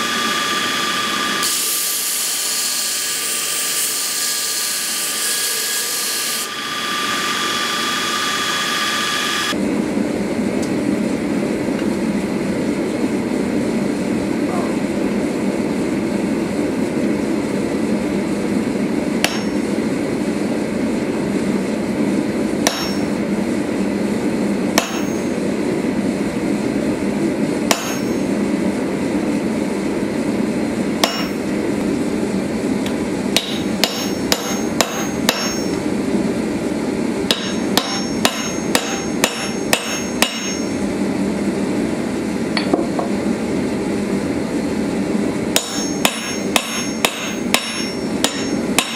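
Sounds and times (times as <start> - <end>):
hammer ringing on anvil tool: 19.2 - 19.7, 22.6 - 23.2, 24.8 - 25.4, 27.7 - 28.3, 31.0 - 31.5, 33.4 - 35.8, 37.3 - 40.8, 45.6 - 48.9.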